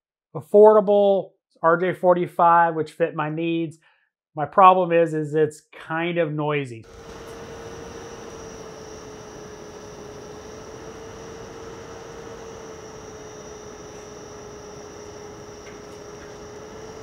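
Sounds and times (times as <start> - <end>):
cooling fan humming: 6.8 - 17.0
faint high whine: 6.8 - 17.0.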